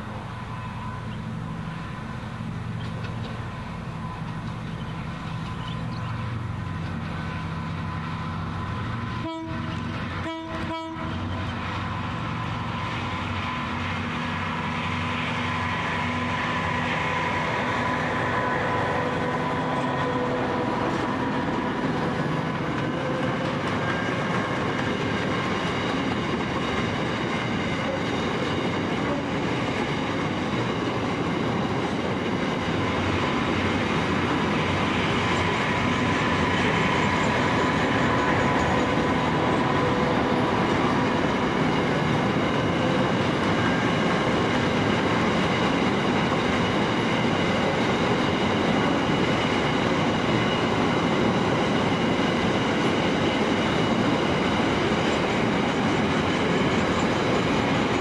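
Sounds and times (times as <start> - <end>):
diesel locomotive droning: 0.0 - 58.0
freight wagons rolling past: 16.6 - 58.0.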